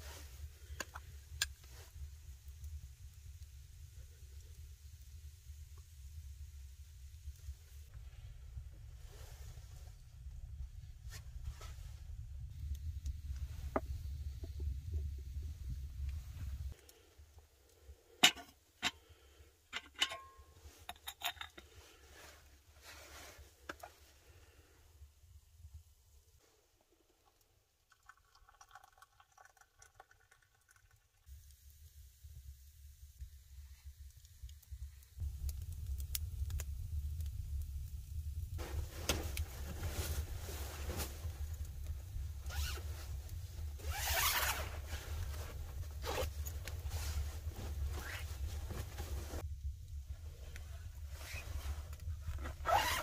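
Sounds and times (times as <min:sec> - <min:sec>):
soft hiss: 0:00.0 - 0:29.1, 0:31.2 - 0:53.0
steady low rumble: 0:06.1 - 0:16.8, 0:32.1 - 0:43.8
metal teapot lid clinking: 0:19.7 - 0:21.7
zipper rasping: 0:43.8 - 0:44.7, 0:52.4 - 0:53.0
fabric rustling: 0:43.8 - 0:46.3, 0:46.9 - 0:49.4, 0:52.4 - 0:53.0.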